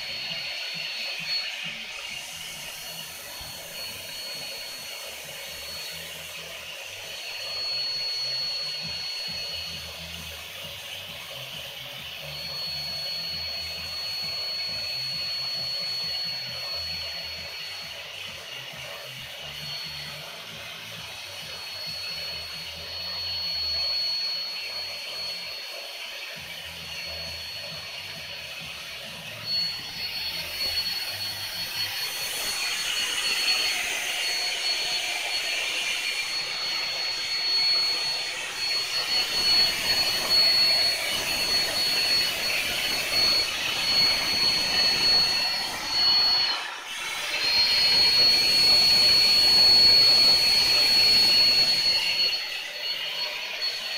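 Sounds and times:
vacuum cleaner motor whine: 0:00.0 - 0:53.9
rushing air through hose: 0:29.6 - 0:53.7.

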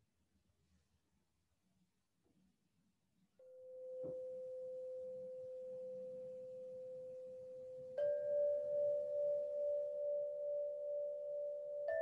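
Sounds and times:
sound-healing instrument tone: 0:03.4 - 0:12.0.

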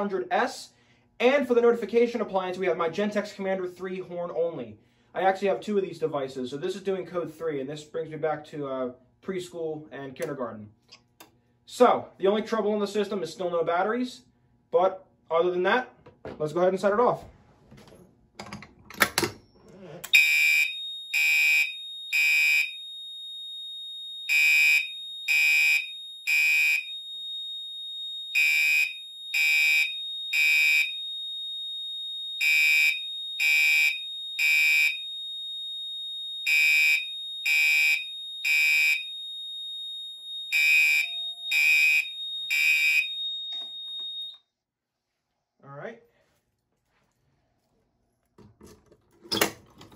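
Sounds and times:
fire alarm horn blasts: 0:20.1 - 0:44.4
steady high electronic tone: 0:40.4 - 0:44.3.

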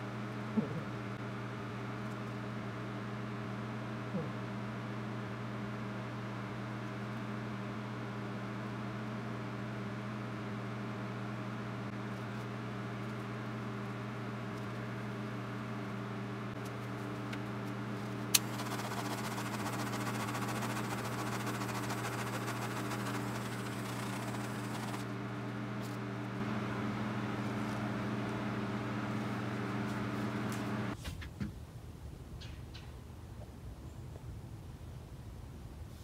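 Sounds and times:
torch clicking alight: 0:18.3 - 0:25.0
motor humming: 0:18.3 - 0:31.0
torch flame hissing: 0:18.4 - 0:25.1.

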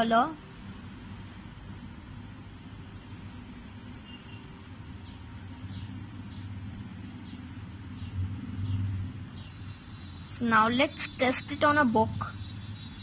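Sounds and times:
low hum: 0:00.7 - 0:10.8.

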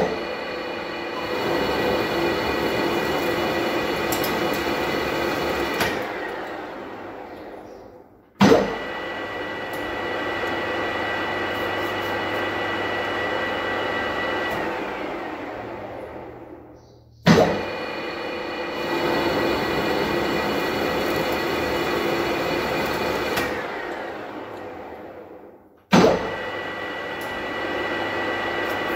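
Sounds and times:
lathe gear whine: 0:00.0 - 0:07.6, 0:17.6 - 0:25.4
loud lathe clunk: 0:01.2 - 0:06.6, 0:18.7 - 0:24.7
lathe click: 0:01.6 - 0:06.6.

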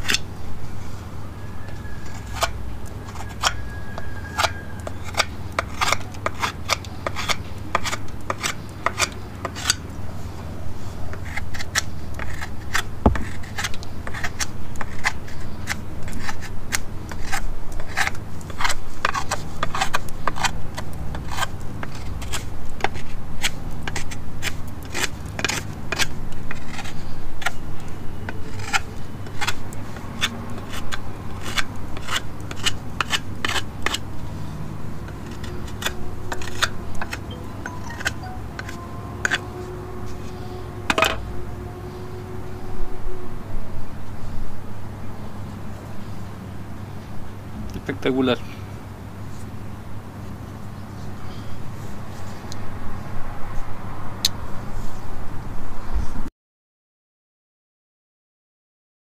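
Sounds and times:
knife whittling wood: 0:01.6 - 0:09.8, 0:11.1 - 0:27.6, 0:28.3 - 0:34.4, 0:35.0 - 0:41.3.

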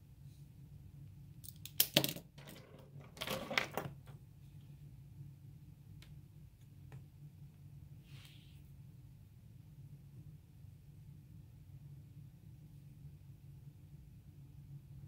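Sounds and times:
plastic pens clattering on a desk: 0:01.4 - 0:04.2.

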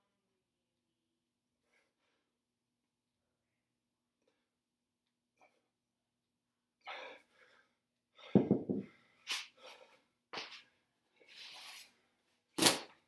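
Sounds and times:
kettlebell thud on concrete: 0:08.3 - 0:08.9.

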